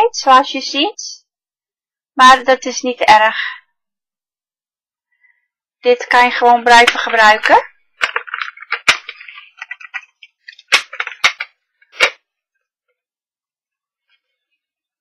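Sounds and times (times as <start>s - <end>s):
plastic case clicking: 6.8s - 12.2s.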